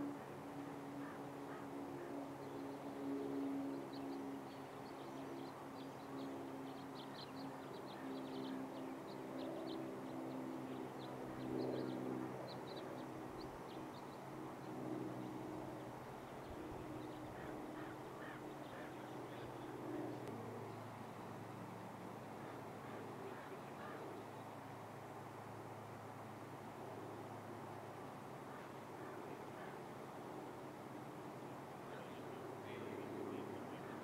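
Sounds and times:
steady low hum: 0.0 - 34.0
birds chirping: 0.8 - 21.6, 22.3 - 24.7, 31.9 - 34.0.

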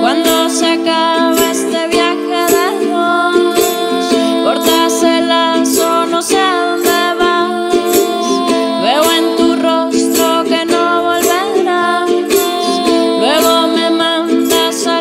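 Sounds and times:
strummed ukulele: 0.0 - 15.0
woman singing: 0.0 - 15.0.

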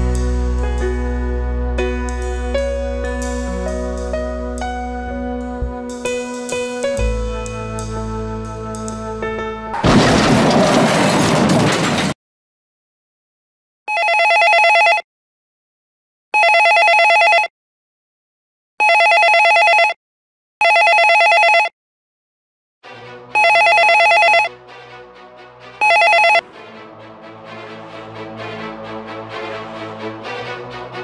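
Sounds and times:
telephone ringing: 13.9 - 15.0, 16.4 - 17.5, 18.8 - 20.0, 20.6 - 21.7, 23.4 - 24.5, 25.8 - 26.4.

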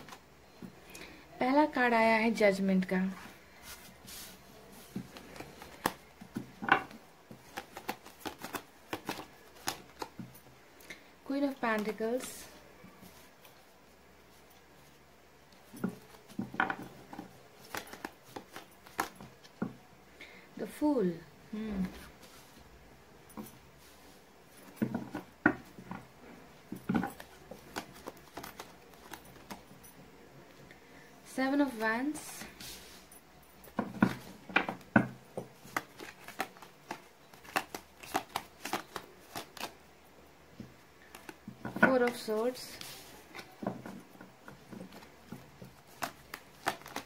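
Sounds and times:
cards being shuffled: 0.0 - 0.2, 3.2 - 10.4, 11.4 - 13.7, 15.6 - 19.6, 26.7 - 29.7, 33.7 - 39.8, 41.0 - 47.0.

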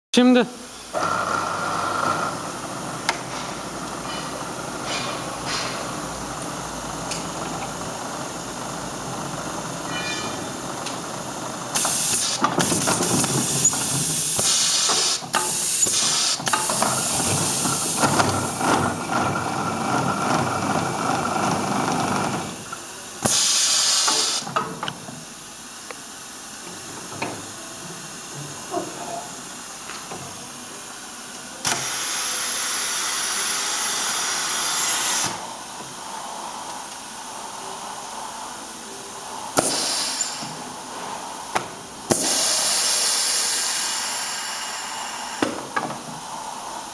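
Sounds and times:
polishing machine running: 0.9 - 22.8
loud hissing bursts: 2.4 - 19.1, 20.9 - 24.6, 31.5 - 46.9.

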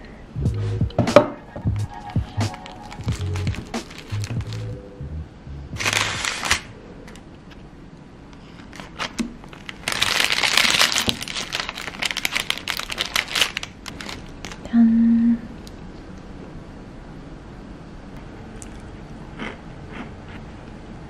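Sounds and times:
baking paper crinkling: 2.4 - 4.7, 5.8 - 6.7, 8.5 - 14.7.

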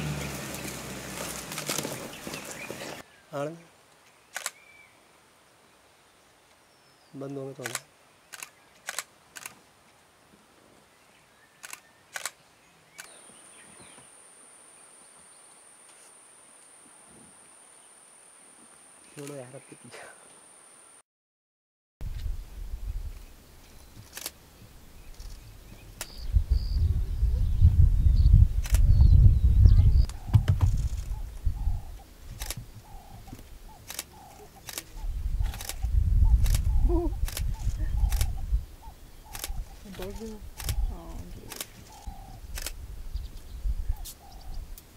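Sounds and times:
camera shutter clicks: 4.3 - 4.6, 7.6 - 9.6, 11.6 - 12.4, 24.0 - 24.4, 32.4 - 32.6, 33.8 - 34.9, 35.5 - 38.4, 39.3 - 39.6, 40.6 - 40.9, 41.5 - 42.8
faint chirping calls: 23.1 - 44.8
low rumble: 25.2 - 32.5.

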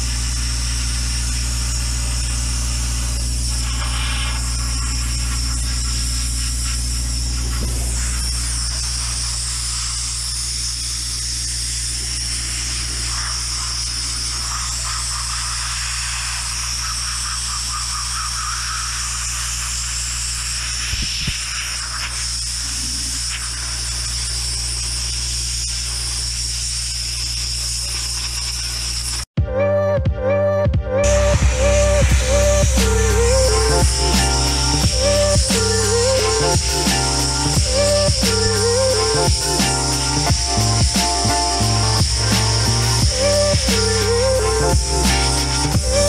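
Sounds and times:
sandblasting gun hissing: 0.0 - 29.4, 31.5 - 46.0
low hum: 30.3 - 46.0.

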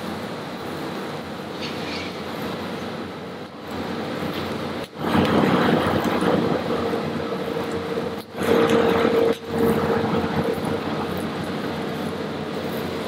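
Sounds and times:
faint hum: 0.0 - 13.0.

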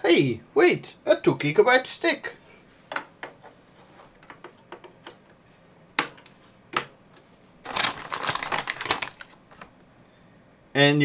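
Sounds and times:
plastic bag crinkling: 7.6 - 9.8.

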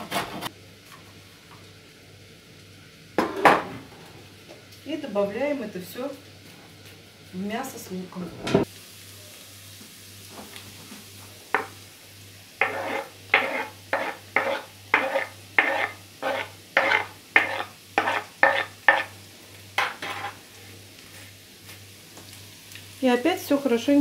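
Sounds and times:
faint sizzle from pan: 0.5 - 24.0
scraping strokes on cutting board: 12.6 - 19.2, 19.8 - 20.4.

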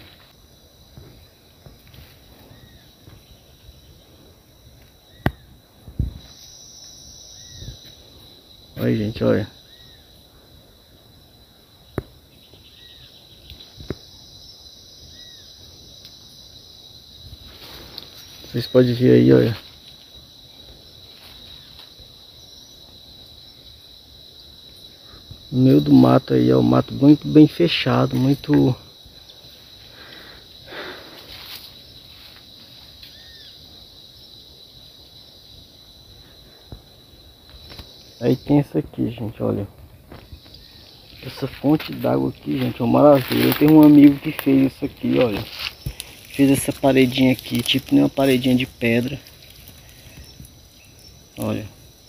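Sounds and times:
high-pitched insect drone: 0.0 - 52.0
footsteps through dry leaves: 41.4 - 50.1.

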